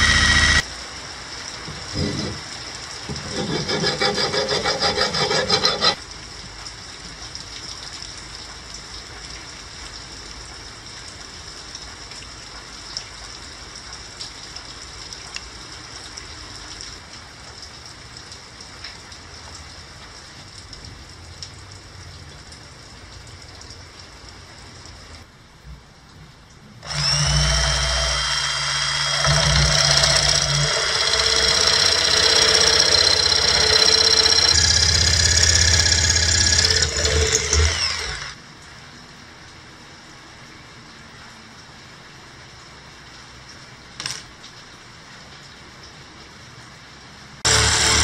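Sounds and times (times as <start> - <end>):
electric drill: 0.0 - 0.7, 3.2 - 6.0, 26.8 - 38.4, 47.5 - 48.0
tools rubbing and clicking: 3.1 - 6.0
rhythmic grating: 3.2 - 6.0.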